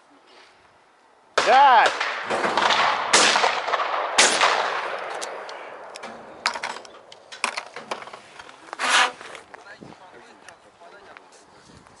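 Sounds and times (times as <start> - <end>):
shotgun shots: 1.4 - 6.3.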